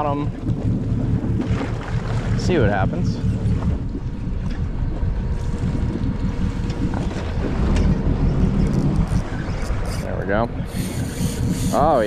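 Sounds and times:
sea water washing around hull: 0.0 - 12.0
wind buffeting microphone: 0.0 - 12.0.

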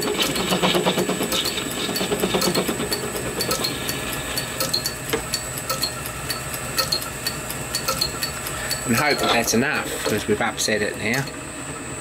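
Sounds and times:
lathe running: 0.0 - 12.0
sharp click: 1.3 - 9.1.

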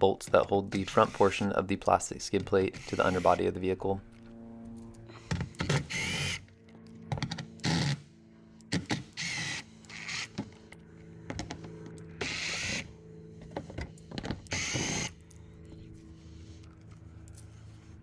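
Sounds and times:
faint steady hum: 0.0 - 18.0
cordless driver spinning bolts: 2.4 - 3.4.

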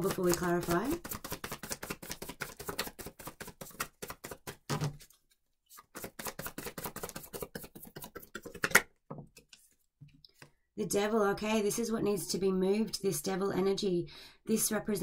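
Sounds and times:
cards being shuffled: 0.0 - 9.8.

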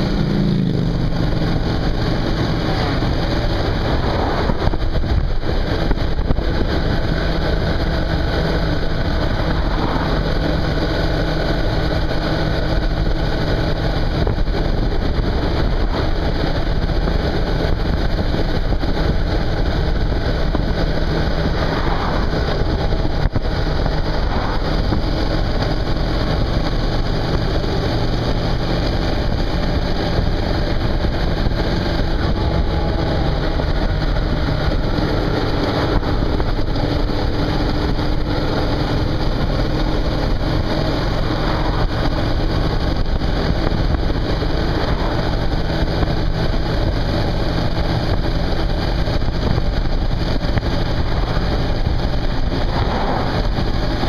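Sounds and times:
motorcycle engine cruising: 0.0 - 54.0
wind and road noise: 0.0 - 54.0.

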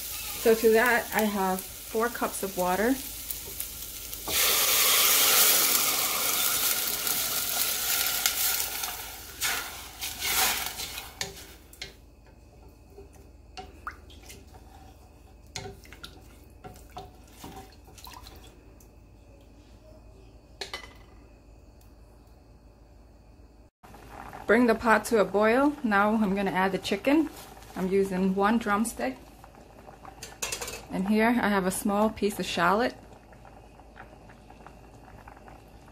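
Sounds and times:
water sizzling in hot pan: 0.0 - 18.4, 23.9 - 35.9
spatula stirring rice: 9.4 - 13.2.

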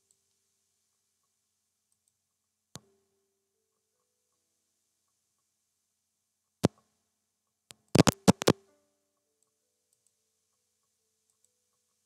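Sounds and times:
computer mouse clicks: 7.7 - 8.6.

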